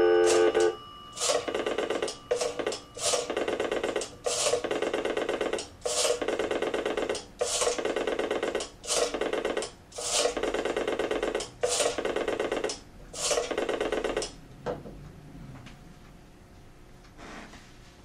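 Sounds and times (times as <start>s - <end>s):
telephone bells ringing: 0.0s - 5.0s.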